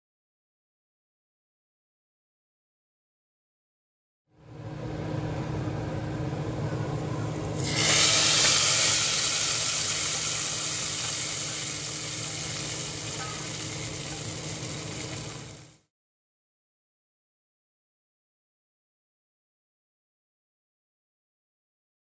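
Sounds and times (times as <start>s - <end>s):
low hum: 4.4s - 15.6s
hot oil sizzling: 7.3s - 15.8s.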